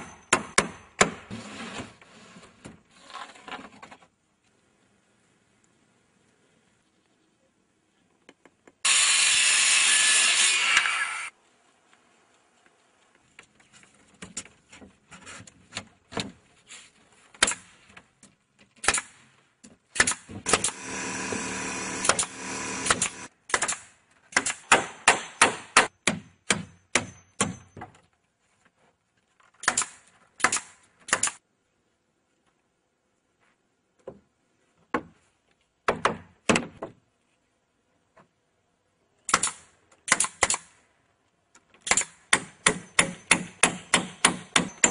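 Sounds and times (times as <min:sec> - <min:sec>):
steady noise: 0:20.5 - 0:23.3.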